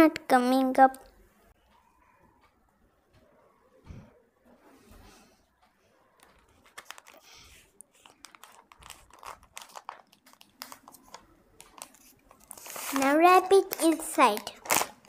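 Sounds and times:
paper crinkling and rustling: 6.2 - 15.0.

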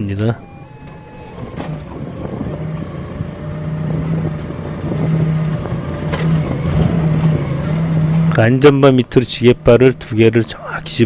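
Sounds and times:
forklift engine revving: 0.4 - 11.0.

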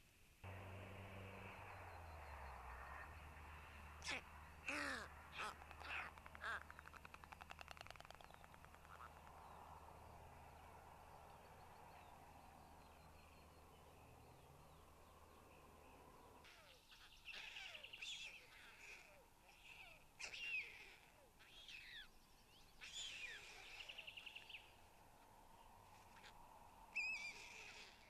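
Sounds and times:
songbirds chirping: 0.4 - 28.0.

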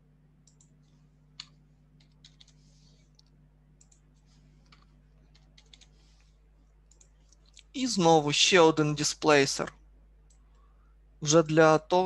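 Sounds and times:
low steady hum: 0.0 - 12.0
keyboard and mouse clicks: 1.4 - 5.9, 6.9 - 7.7.

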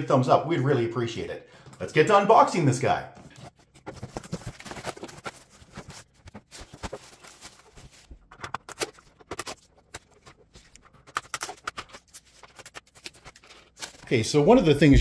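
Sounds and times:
cardboard being handled: 3.1 - 15.0
plastic bag crinkling: 3.6 - 8.2.

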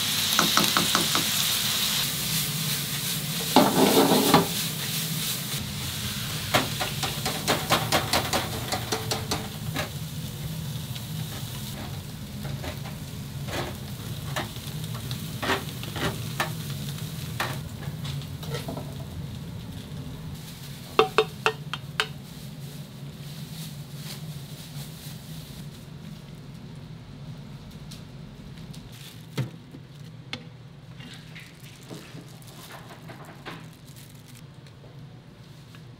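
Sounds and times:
meat sizzling: 0.0 - 22.8
utensils clicking and tapping: 6.8 - 9.8, 21.0 - 22.2.

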